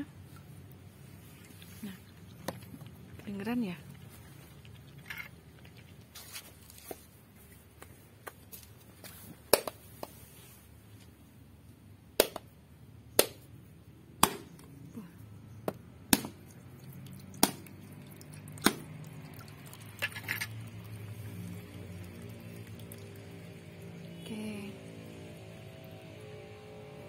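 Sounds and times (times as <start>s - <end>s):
machete chopping coconut shell: 12.2s - 12.5s, 13.2s - 13.5s, 14.2s - 14.7s, 15.6s - 16.5s, 17.4s - 17.8s, 18.6s - 18.9s.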